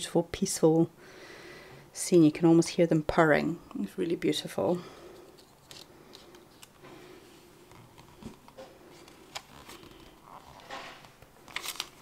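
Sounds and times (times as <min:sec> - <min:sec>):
book page turning: 0:05.4 - 0:06.8, 0:07.6 - 0:12.0
paper rustle: 0:07.7 - 0:12.0.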